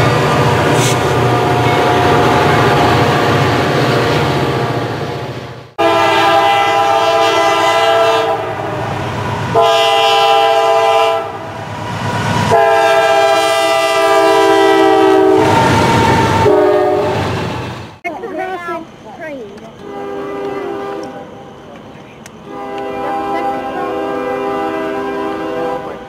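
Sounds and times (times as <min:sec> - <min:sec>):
freight train rolling by: 0:00.0 - 0:26.0
locomotive air horn blasts: 0:05.8 - 0:08.9, 0:09.5 - 0:11.5, 0:12.4 - 0:17.2, 0:19.8 - 0:21.2, 0:22.4 - 0:26.0.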